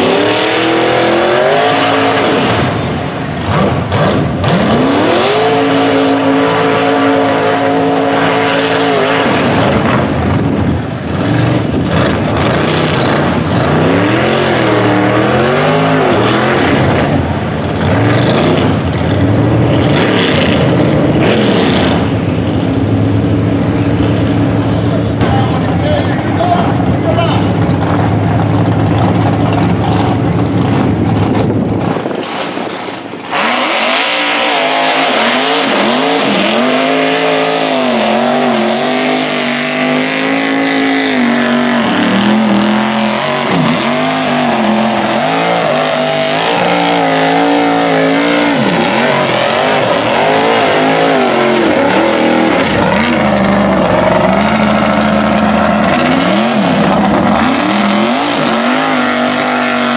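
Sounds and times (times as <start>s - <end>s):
tires churning mud: 0.0s - 59.9s
truck engine revving: 0.0s - 59.9s.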